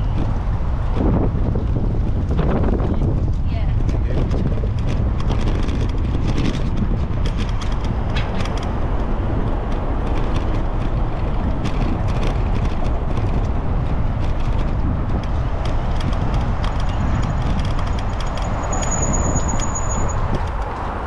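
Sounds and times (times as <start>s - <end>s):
bicycle clicks and rattles: 0.0s - 21.0s
wind and tyres rumbling: 0.0s - 21.0s.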